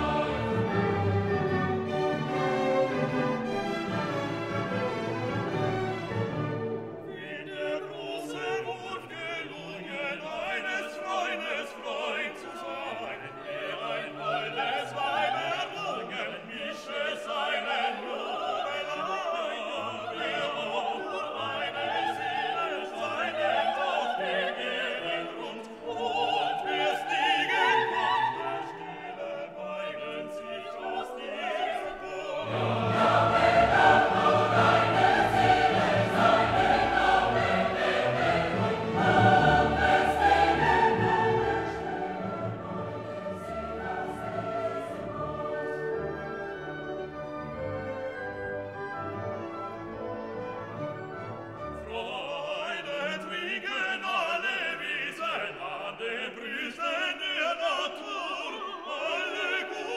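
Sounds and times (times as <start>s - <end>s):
orchestra playing: 0.0s - 7.9s, 31.3s - 52.7s
operatic singing: 0.0s - 46.8s, 51.7s - 59.9s
choir singing: 0.0s - 59.9s.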